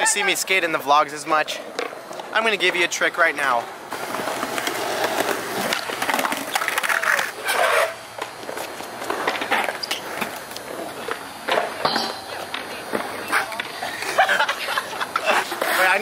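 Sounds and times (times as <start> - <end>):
skateboard rolling on concrete: 0.1 - 16.0
skateboard scrape: 3.9 - 11.8, 12.8 - 16.0.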